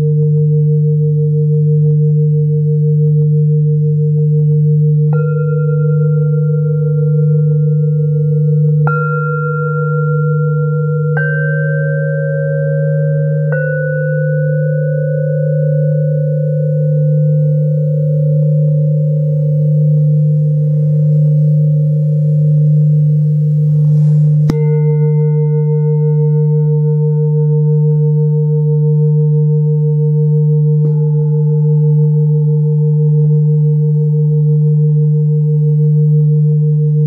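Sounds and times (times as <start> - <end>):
deep singing bowl humming: 0.0 - 37.0
mallet striking singing bowls: 5.0 - 7.8, 8.8 - 15.8, 20.4 - 28.5, 30.8 - 32.6.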